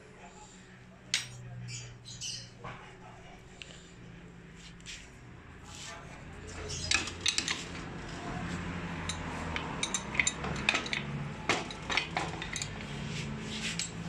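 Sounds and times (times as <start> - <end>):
metallic clinks and knocks: 9.0 - 12.8.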